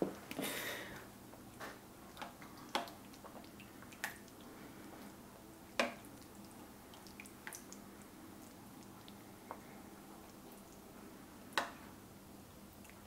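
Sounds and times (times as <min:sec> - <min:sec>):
sauce dripping: 0:01.5 - 0:12.0
wet squishing: 0:02.1 - 0:10.9.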